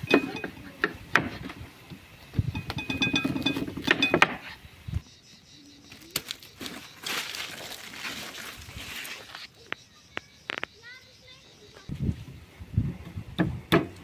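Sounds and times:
metal utensils clinking on pots: 0.0 - 0.9, 2.6 - 4.4.

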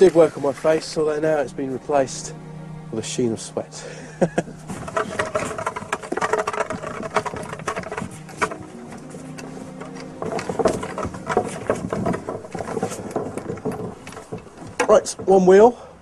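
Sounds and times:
cart wheel crunching on gravel: 0.0 - 2.0, 3.9 - 15.9
footsteps on gravel: 4.5 - 15.7.

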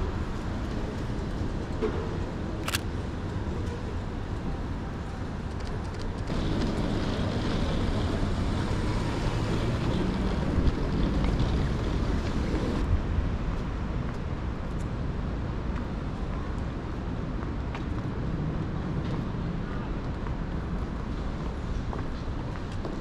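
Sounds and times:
vehicle passing: 6.3 - 12.9.

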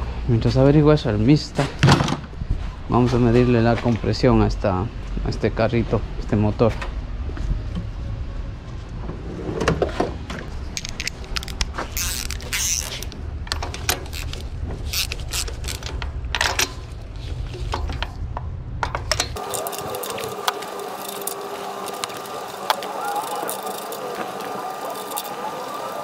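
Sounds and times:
socket ratchet clicking: 10.7 - 15.9
hand tools clinking and scraping: 19.1 - 26.0.

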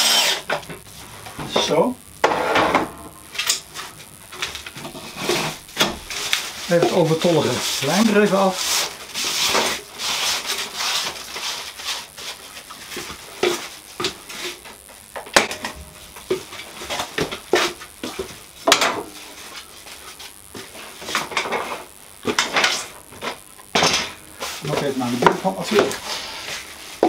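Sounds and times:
cloth rag rubbing on wood: 6.5 - 12.6.

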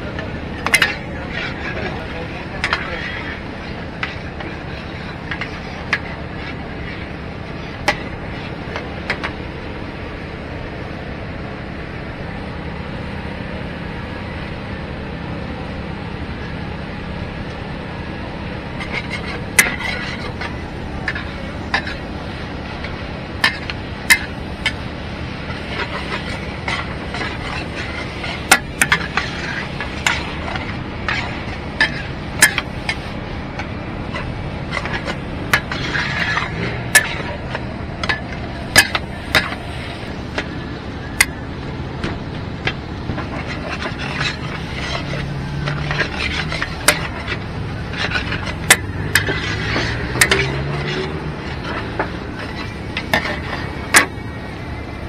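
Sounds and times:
metal utensils clanking on wok: 0.0 - 9.3, 18.8 - 24.8, 25.4 - 40.5, 42.6 - 54.2.

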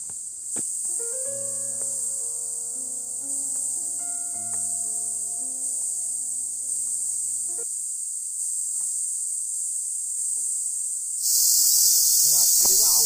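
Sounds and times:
soft background music: 0.0 - 7.7
insects droning: 0.0 - 13.0.

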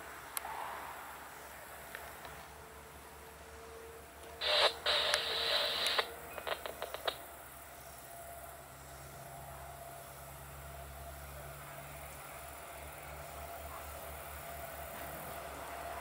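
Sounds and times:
scanner radio static burst: 4.4 - 7.2
short crackling clicks: 4.4 - 7.2.

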